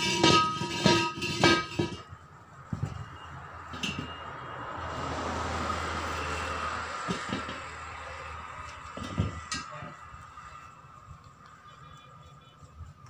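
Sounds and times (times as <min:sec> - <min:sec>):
metal-on-metal clanks: 0:00.0 - 0:04.5, 0:07.0 - 0:07.9, 0:08.8 - 0:10.0.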